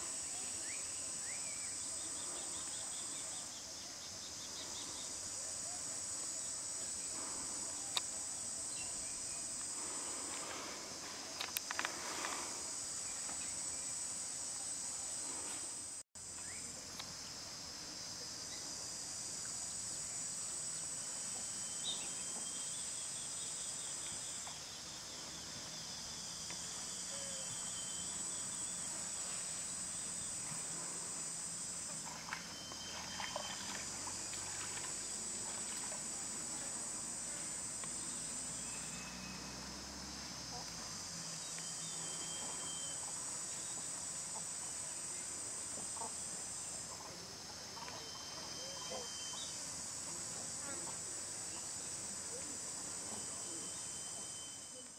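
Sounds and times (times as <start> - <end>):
high-pitched insect chorus: 0.0 - 54.9
faint clicks: 11.4 - 12.4.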